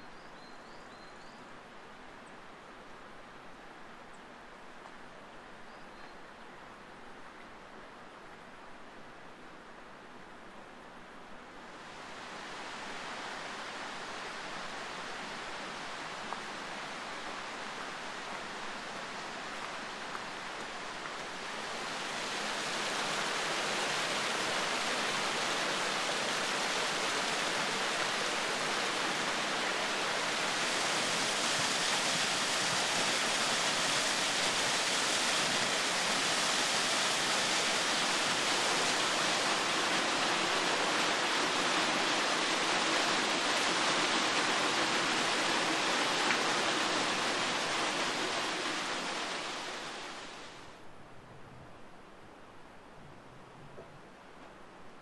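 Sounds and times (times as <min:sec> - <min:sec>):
stream and waterfall rushing: 0:00.0 - 0:50.9.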